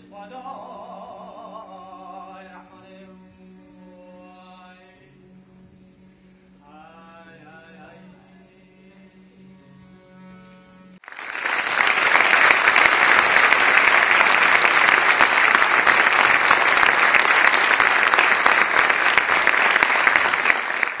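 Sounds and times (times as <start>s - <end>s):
audience applauding: 11.0s - 21.0s.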